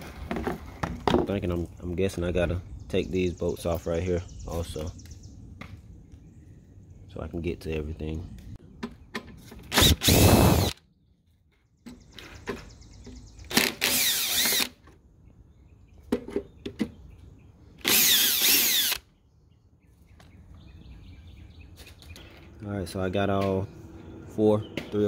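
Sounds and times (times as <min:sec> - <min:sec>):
cordless drill whining: 0:09.7 - 0:10.8, 0:13.5 - 0:14.8, 0:17.8 - 0:19.0.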